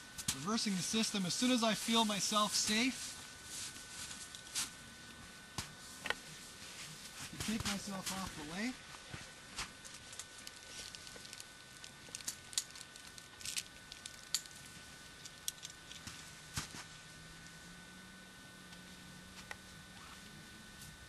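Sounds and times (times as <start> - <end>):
climbing rope hardware clicking: 9.8 - 14.6, 15.2 - 16.1.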